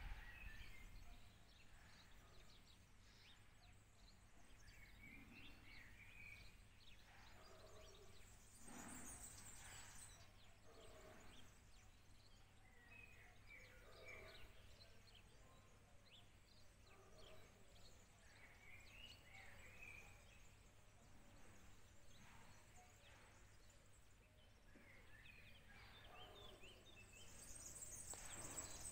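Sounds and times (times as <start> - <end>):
birds chirping: 0.0 - 28.9.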